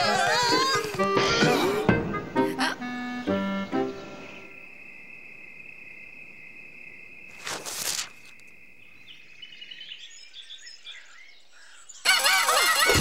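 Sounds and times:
crickets chirping: 0:02.1 - 0:12.9
birds chirping: 0:08.1 - 0:13.0.

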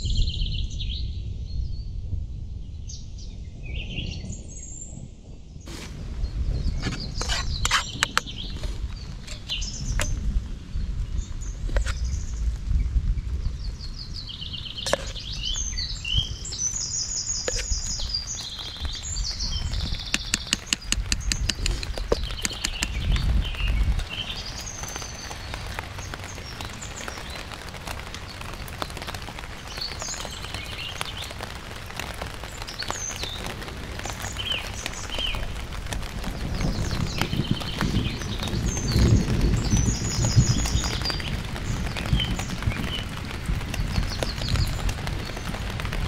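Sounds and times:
songbirds chirping: 0:00.0 - 0:46.0
rain patter: 0:03.8 - 0:46.0
sharp clicks: 0:20.0 - 0:23.1.

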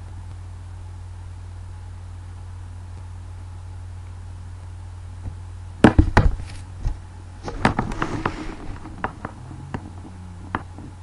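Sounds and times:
steady low hum: 0:00.0 - 0:11.0
sharp knocks and thumps: 0:05.8 - 0:11.0.

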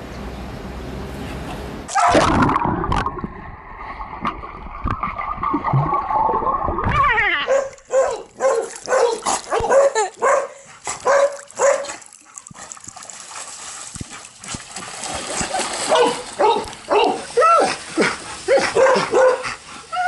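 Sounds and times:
muffled underwater churning: 0:02.0 - 0:08.4
dog yipping: 0:07.4 - 0:12.0.

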